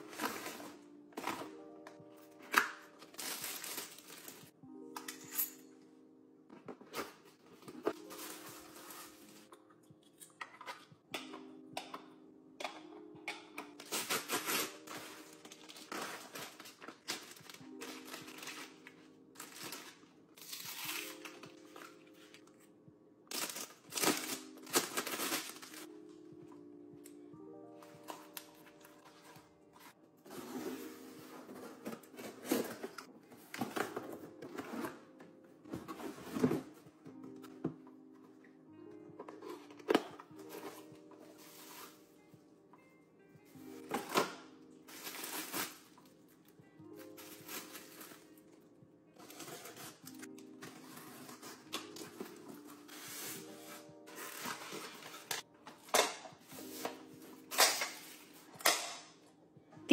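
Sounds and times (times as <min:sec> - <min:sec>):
soft background music: 0:00.0 - 0:59.9
paper bag tearing and crinkling: 0:19.4 - 0:21.5, 0:23.3 - 0:25.9.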